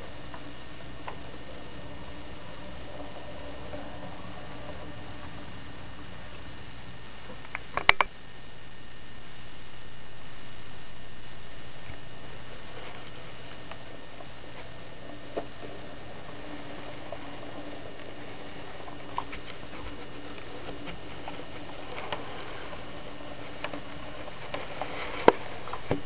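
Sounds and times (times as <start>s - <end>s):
faint model train motor hum: 0.0s - 26.0s
small clicks: 7.3s - 8.1s.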